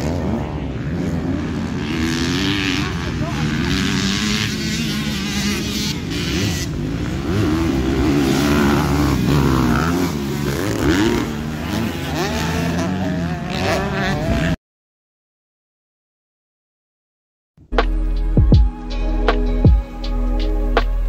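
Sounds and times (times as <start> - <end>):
motocross bike engines revving: 0.0 - 14.6.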